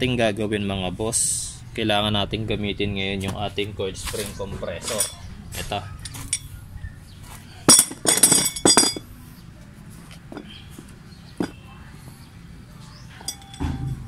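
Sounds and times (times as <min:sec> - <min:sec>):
metal clinking: 0:04.8 - 0:05.3, 0:06.0 - 0:06.6, 0:07.6 - 0:09.1, 0:11.4 - 0:11.6, 0:13.1 - 0:14.0.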